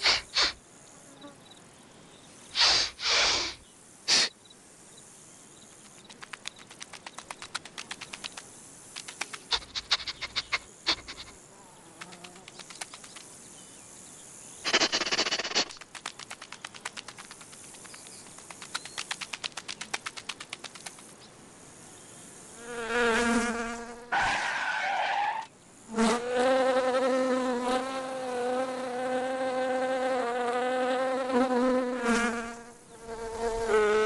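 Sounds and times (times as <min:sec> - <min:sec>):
short hissing burst: 0:00.0 - 0:00.6, 0:02.5 - 0:04.4, 0:14.6 - 0:15.8
quick light ticks: 0:05.8 - 0:10.5.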